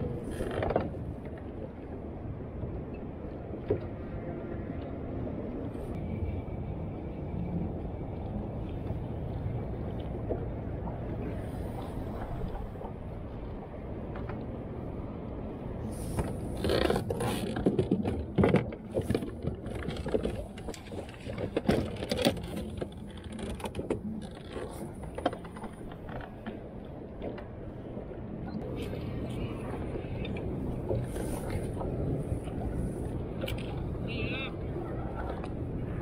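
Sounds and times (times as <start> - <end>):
low rumble of wind and water: 0.0 - 36.0
gear clicking and knocking in boat: 0.1 - 1.4, 16.0 - 27.6, 29.8 - 35.6.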